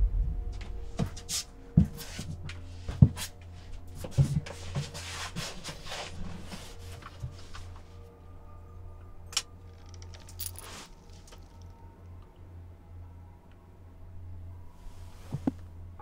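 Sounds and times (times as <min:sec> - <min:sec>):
low steady hum: 0:00.0 - 0:16.0
shuffling: 0:10.1 - 0:11.4.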